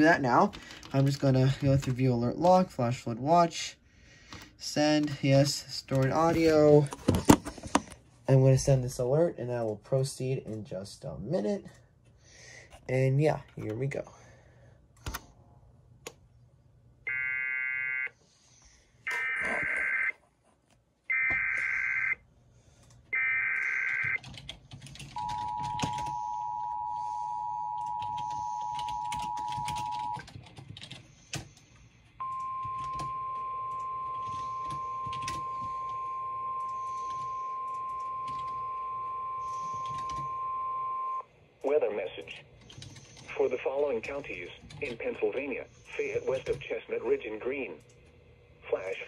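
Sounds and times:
steady single-tone alarm: 0:17.1 - 0:18.1, 0:19.1 - 0:20.1, 0:21.1 - 0:22.2, 0:23.1 - 0:24.2, 0:25.2 - 0:30.2, 0:32.2 - 0:41.3
two-tone attention signal: 0:32.2 - 0:41.2.

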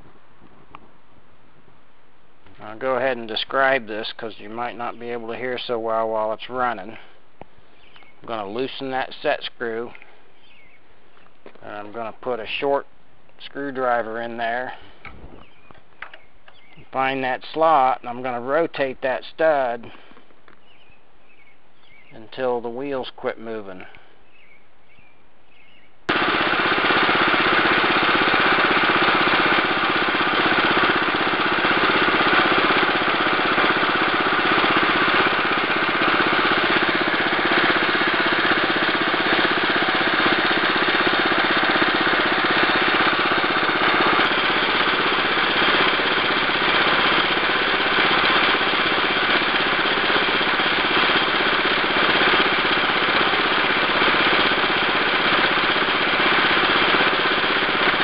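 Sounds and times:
garden tractor engine running: 0:26.1 - 0:58.0.

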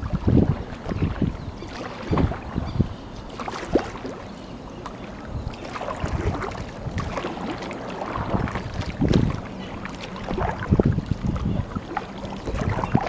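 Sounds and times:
wind gusting on microphone: 0:00.0 - 0:03.0, 0:05.3 - 0:09.5, 0:10.2 - 0:13.0
paddle strokes splashing water: 0:00.0 - 0:13.0.

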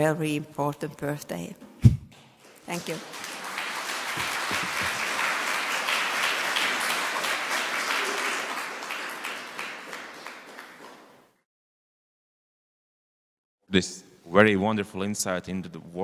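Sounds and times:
audience applauding: 0:02.5 - 0:11.4.

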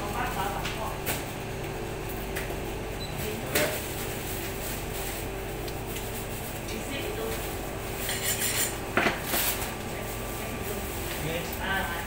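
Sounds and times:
knife clinking and scraping: 0:08.0 - 0:08.8.

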